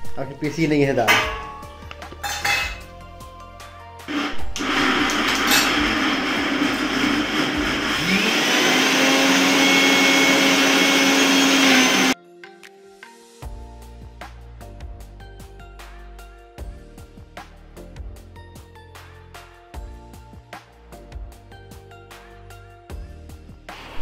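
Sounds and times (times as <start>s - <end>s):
mixer grinder motor whining: 4.1s - 12.2s.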